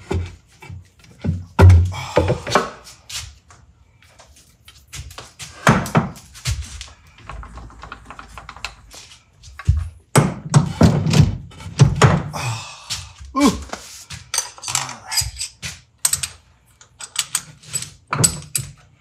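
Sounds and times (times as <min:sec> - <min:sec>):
metal knocks and thunks: 0:01.2 - 0:02.7, 0:09.6 - 0:12.4.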